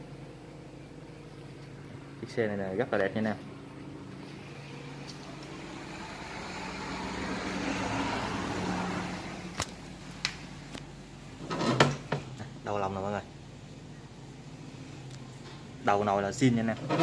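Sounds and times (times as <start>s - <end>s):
steady low hum: 0.0s - 17.0s
road vehicle passing: 3.9s - 10.1s.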